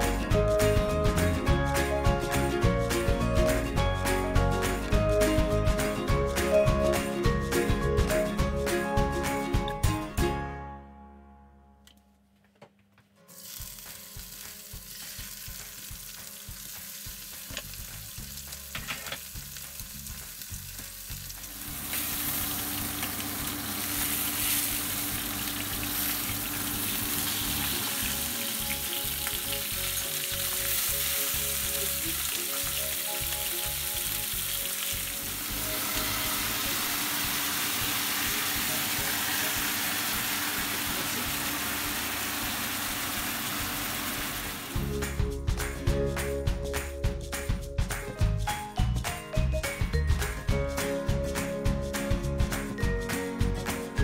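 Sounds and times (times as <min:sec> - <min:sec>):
fish sizzling in hot oil: 0:13.3 - 0:44.8.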